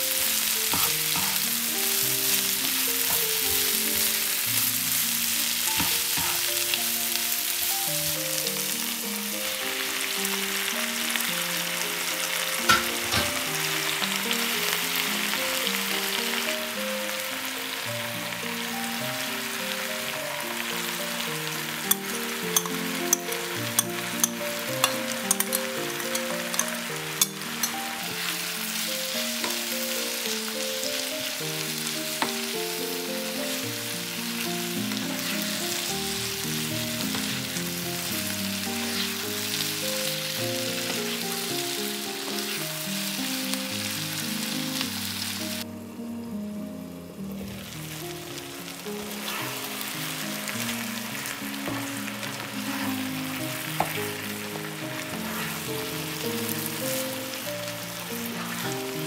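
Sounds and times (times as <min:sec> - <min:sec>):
food sizzling in a frying pan: 0:00.0 - 0:59.0
soft melodic tune: 0:00.0 - 0:59.0
spatula tapping a pan: 0:00.7 - 0:01.4, 0:05.7 - 0:06.5, 0:12.7 - 0:13.5, 0:21.9 - 0:27.8, 0:29.4 - 0:29.7, 0:53.8 - 0:54.0.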